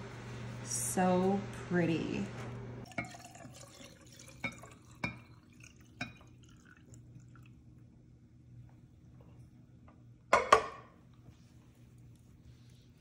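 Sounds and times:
wax trickling into glass jar: 0:02.8 - 0:07.5.

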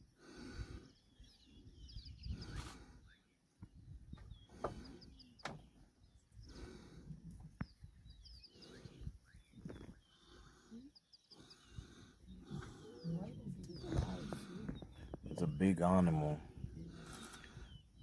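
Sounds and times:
birds chirping: 0:00.0 - 0:18.0
lions growling and grunting: 0:11.6 - 0:15.2.

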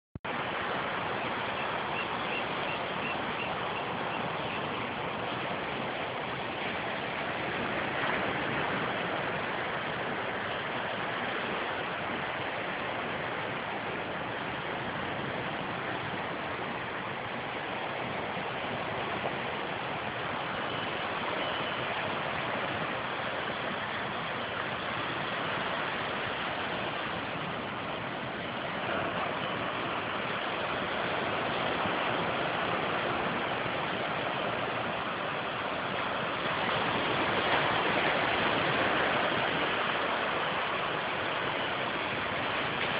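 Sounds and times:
ocean surf breaking on beach: 0:00.3 - 0:42.9.

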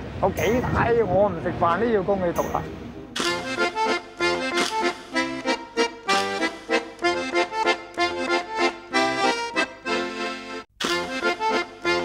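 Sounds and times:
instrumental music with pulsed chords: 0:03.2 - 0:12.0.

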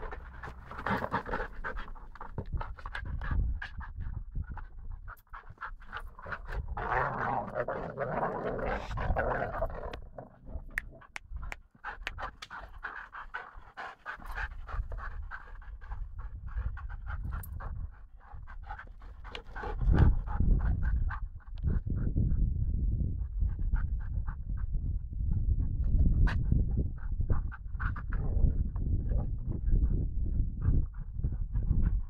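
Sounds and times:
dogs panting heavily: 0:00.0 - 0:06.8, 0:10.7 - 0:22.4.

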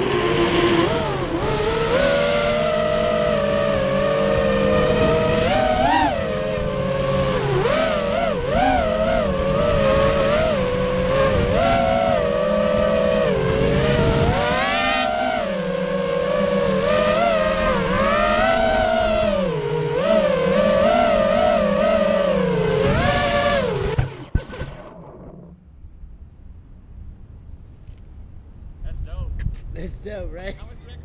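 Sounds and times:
prop wash and wind rush: 0:00.0 - 0:07.8
drone motors whining: 0:00.0 - 0:28.3.

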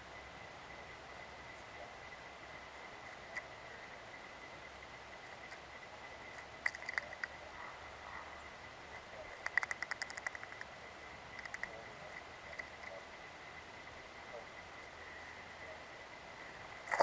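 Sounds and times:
bird bill tapping on shells and wood: 0:06.4 - 0:07.4, 0:09.3 - 0:10.7, 0:11.3 - 0:12.9.

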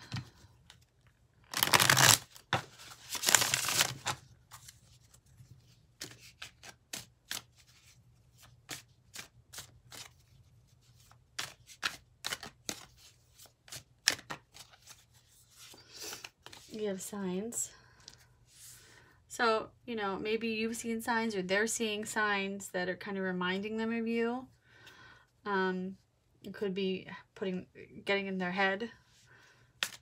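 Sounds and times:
cards being shuffled: 0:00.1 - 0:16.8, 0:29.8 - 0:30.0
card snaps and taps: 0:29.8 - 0:30.0.

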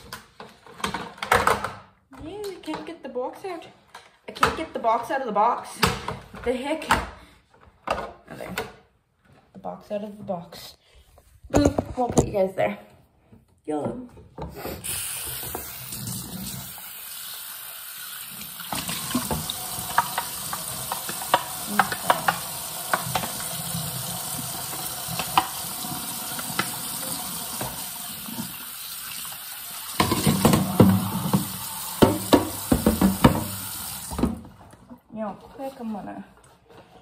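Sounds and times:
plastic containers clattering: 0:00.0 - 0:02.9, 0:30.0 - 0:35.0
faucet running into sink: 0:14.8 - 0:34.4.

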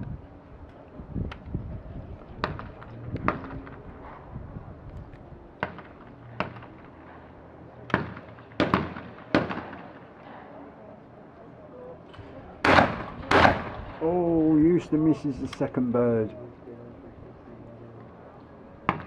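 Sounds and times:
shotgun shots: 0:07.9 - 0:10.2, 0:12.6 - 0:14.0.

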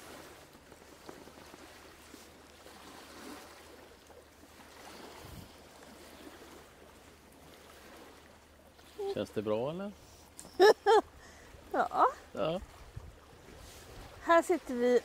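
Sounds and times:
light wind: 0:00.0 - 0:15.0
small waves: 0:00.0 - 0:15.0.

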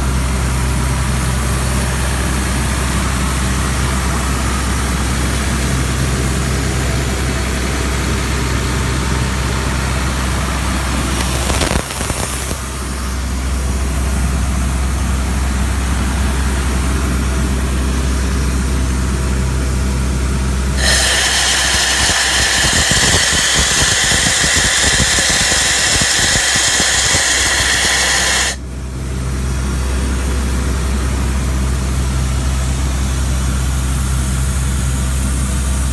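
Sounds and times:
diesel engine running: 0:00.0 - 0:35.9
loud rushing hiss: 0:10.6 - 0:13.2, 0:20.8 - 0:28.6.

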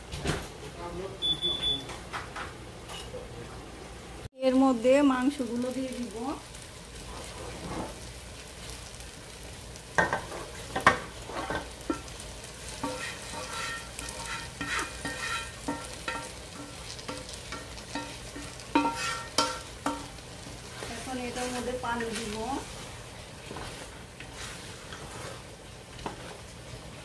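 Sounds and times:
low sizzle: 0:00.0 - 0:27.0
spatula scraping pot: 0:07.0 - 0:08.1, 0:10.0 - 0:22.8, 0:23.4 - 0:26.4.

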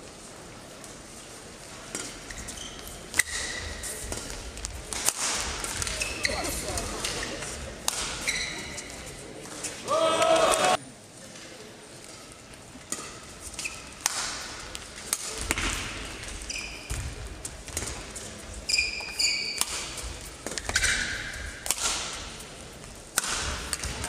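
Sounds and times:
shoes squeaking on court floor: 0:01.9 - 0:04.4, 0:05.6 - 0:07.4, 0:08.1 - 0:09.8, 0:12.9 - 0:14.0, 0:16.2 - 0:21.6
racket striking shuttlecock: 0:19.6 - 0:22.2, 0:23.1 - 0:24.0.

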